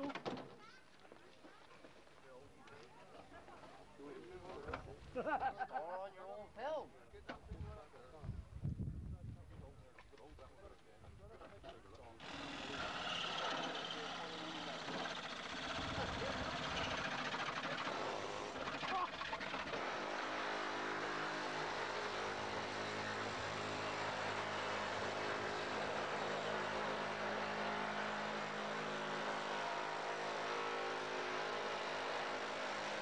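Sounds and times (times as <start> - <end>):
air chisel cutting sheet steel: 12.2 - 20.3.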